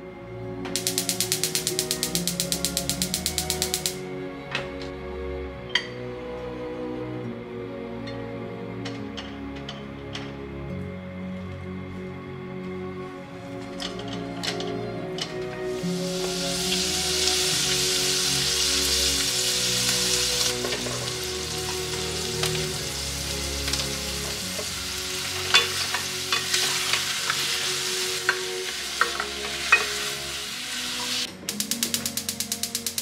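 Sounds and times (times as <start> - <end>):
chicken sizzling in butter: 15.8 - 31.3.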